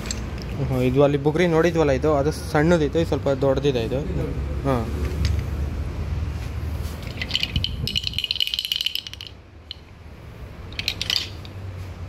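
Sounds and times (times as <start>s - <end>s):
wooden toy rattling: 0.0s - 0.6s, 7.0s - 10.0s, 10.6s - 11.7s.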